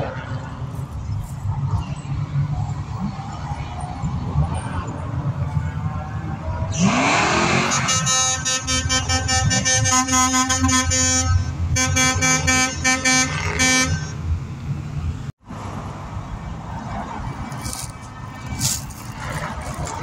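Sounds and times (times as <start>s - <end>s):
passing traffic rumble: 0.0s - 20.0s
vehicle horn honking: 6.8s - 14.2s.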